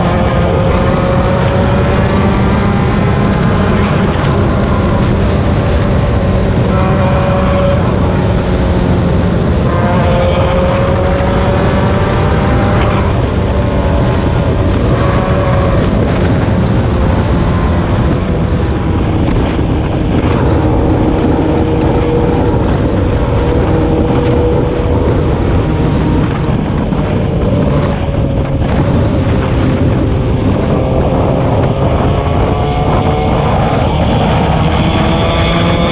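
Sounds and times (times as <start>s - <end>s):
vehicle engine running: 0.0s - 35.9s
wind noise on microphone: 0.0s - 35.9s.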